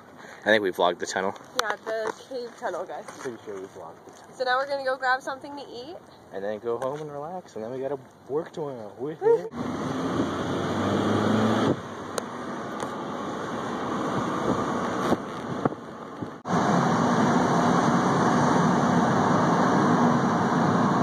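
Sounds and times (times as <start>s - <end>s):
outdoor noise: 0.0s - 21.0s
car engine and road noise: 8.0s - 21.0s.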